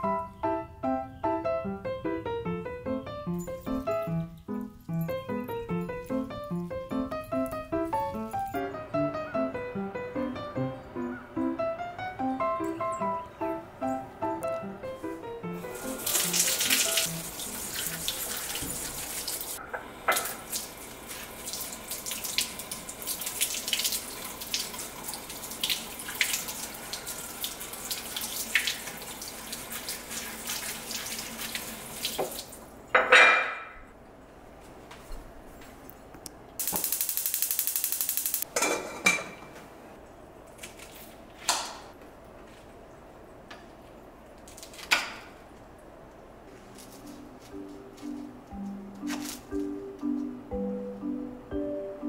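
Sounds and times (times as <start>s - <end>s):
water running from tap: 15.6s - 32.7s.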